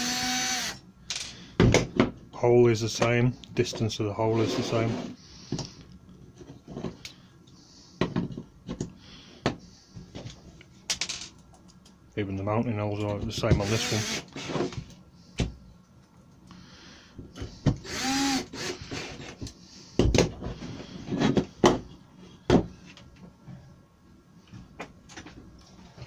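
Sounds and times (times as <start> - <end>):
cordless drill driving screws: 0.0 - 0.8, 13.6 - 14.7, 17.8 - 19.3.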